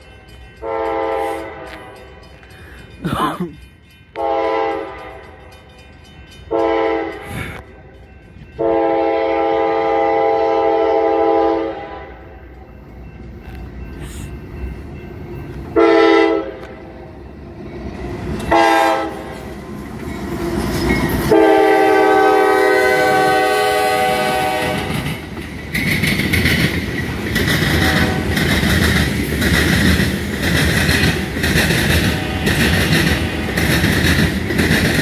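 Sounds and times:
train wheels rolling on rail: 0.0 - 35.0
locomotive air horn blasts: 0.6 - 2.0, 4.2 - 5.2, 6.5 - 7.2, 8.6 - 12.3, 15.8 - 16.7, 18.5 - 19.3, 21.3 - 25.0, 27.7 - 28.4, 32.0 - 33.6.

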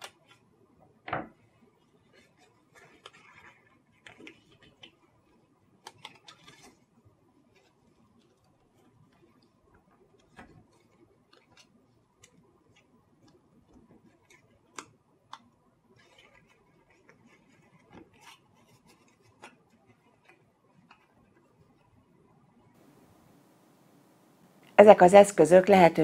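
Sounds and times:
paper folding and creasing: 1.4 - 22.0.

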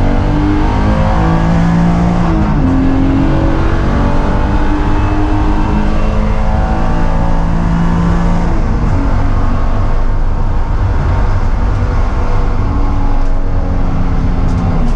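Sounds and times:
car engine accelerating: 0.0 - 14.9
wind and road noise: 0.0 - 14.9.

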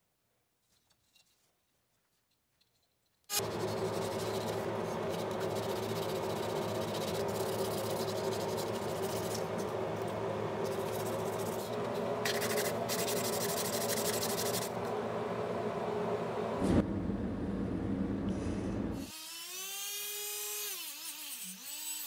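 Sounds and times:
sanding sheet metal: 3.3 - 14.8.

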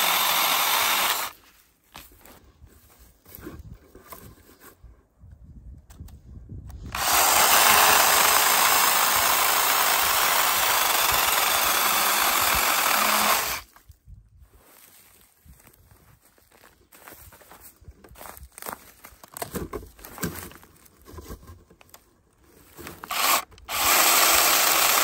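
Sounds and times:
chainsaw cutting through log: 0.0 - 1.4, 6.8 - 13.7, 22.8 - 25.0.

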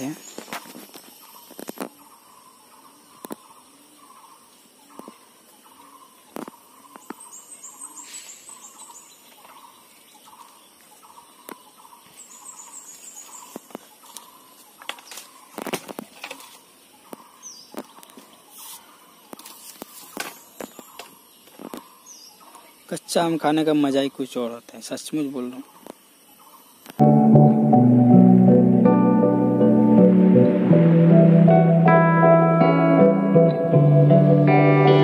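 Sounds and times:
bird calling: 0.0 - 24.4
small birds twittering: 0.0 - 27.8
pole knocking among branches: 14.8 - 18.2, 19.4 - 21.8.

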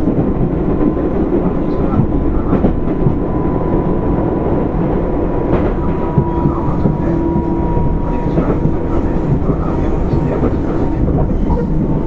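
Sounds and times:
train wheels rumbling on rail: 0.0 - 12.0
low hum: 3.2 - 10.0.

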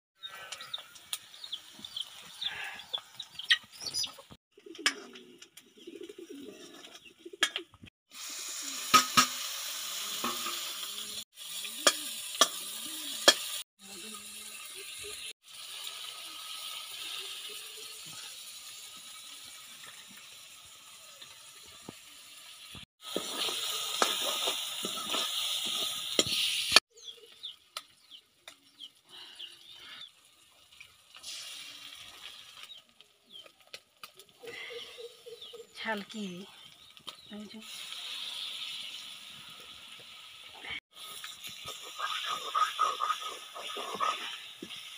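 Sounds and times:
birds chirping: 0.2 - 7.6, 26.9 - 30.2, 34.2 - 37.6
onions sizzling in oil: 8.1 - 34.3, 36.7 - 44.9.

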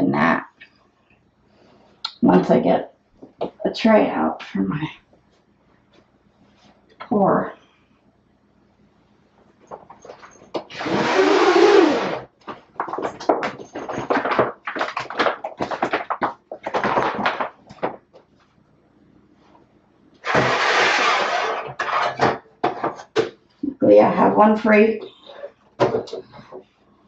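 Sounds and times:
plastic tray knocks and rustles: 12.5 - 18.0
plastic tray scraping on rack: 20.2 - 23.2.

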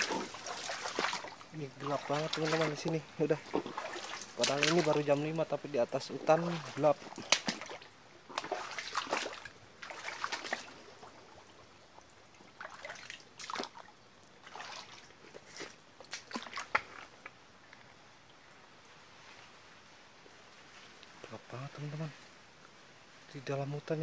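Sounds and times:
feet splashing through water: 0.0 - 5.7, 6.3 - 11.7, 12.3 - 17.3.

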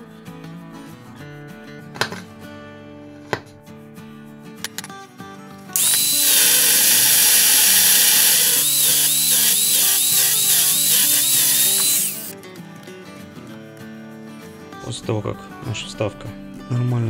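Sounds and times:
background music: 0.0 - 17.0
angle grinder grinding metal: 5.8 - 12.3.

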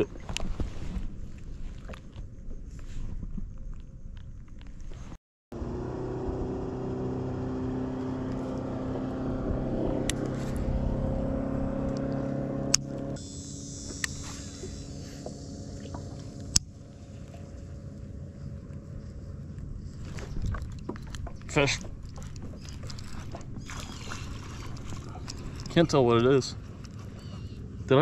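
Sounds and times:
motor drone: 5.6 - 20.6
high hiss: 13.2 - 16.4.

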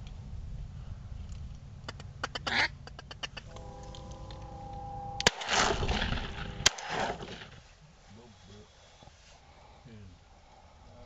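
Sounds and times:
steady held tone: 3.5 - 7.5
shotgun shots: 5.2 - 7.6.

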